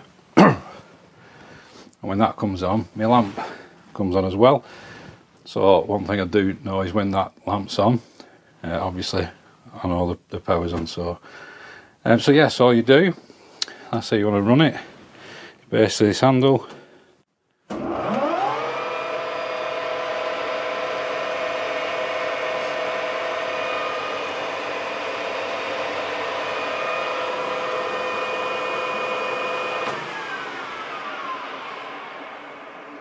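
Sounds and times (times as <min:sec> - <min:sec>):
lathe humming with gear whine: 0:17.8 - 0:33.0.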